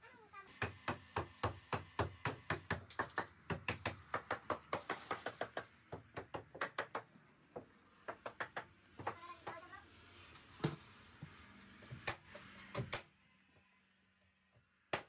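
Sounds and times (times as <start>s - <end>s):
hammer striking timber: 0.5s - 9.6s.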